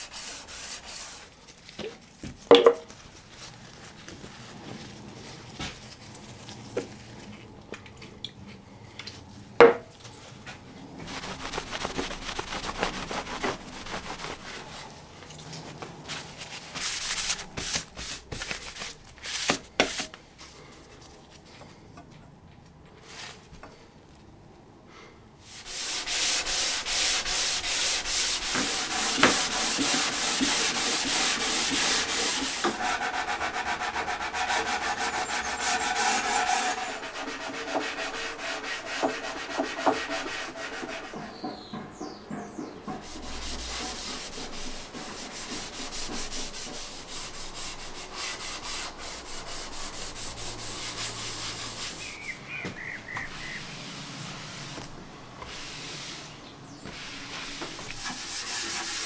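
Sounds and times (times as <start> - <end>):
sandpaper rubbing on wood: 0.0 - 1.3, 11.0 - 14.9, 16.2 - 20.1, 25.4 - 41.2, 43.0 - 52.4, 56.9 - 59.0.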